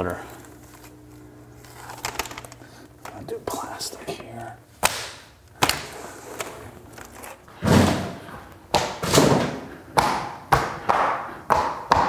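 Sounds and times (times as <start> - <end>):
plastic floor tiles snapping into place: 4.8 - 6.5.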